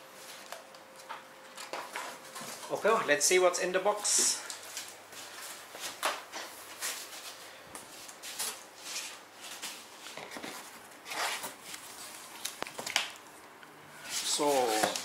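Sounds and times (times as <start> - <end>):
cardboard rustling and scraping: 5.2 - 12.9, 14.1 - 15.0.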